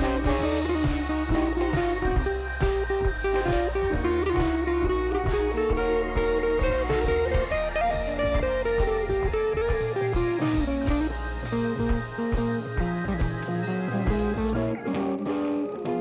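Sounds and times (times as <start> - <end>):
bass line: 0.0 - 16.0
blues electric guitar melody: 0.0 - 16.0
drum kit: 0.0 - 16.0.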